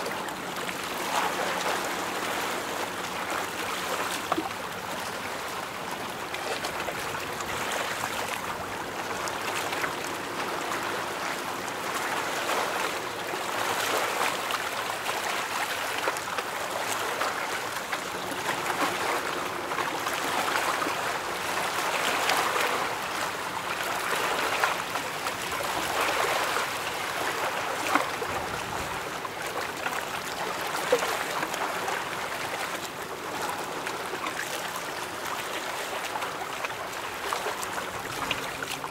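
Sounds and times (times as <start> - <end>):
water lapping: 0.0 - 38.9.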